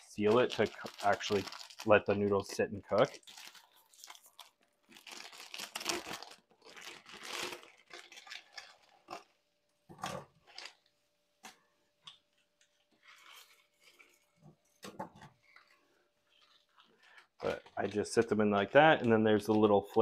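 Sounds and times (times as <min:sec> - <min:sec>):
plastic wrapper rustling: 0:00.0 - 0:09.4, 0:10.0 - 0:19.9.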